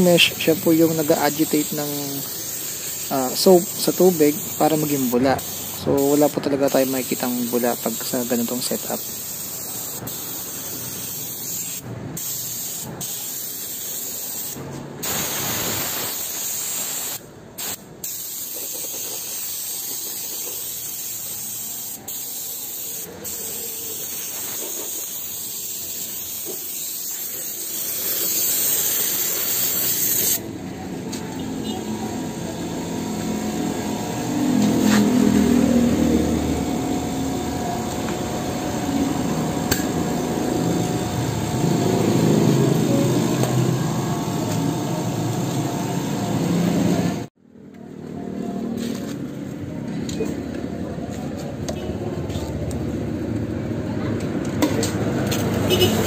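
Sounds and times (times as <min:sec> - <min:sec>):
air water spray hissing: 0:00.0 - 0:30.4.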